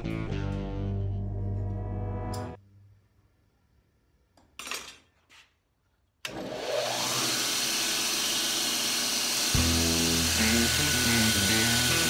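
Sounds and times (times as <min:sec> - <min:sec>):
belt grinder whining: 0:06.3 - 0:12.0.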